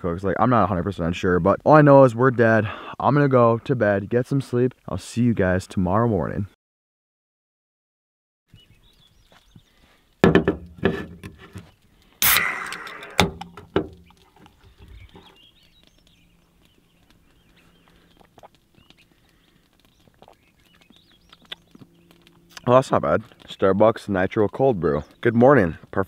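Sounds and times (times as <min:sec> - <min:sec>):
can knocking on metal tailgate: 0:10.2 - 0:11.1
can cracked open with hiss: 0:12.2 - 0:14.4.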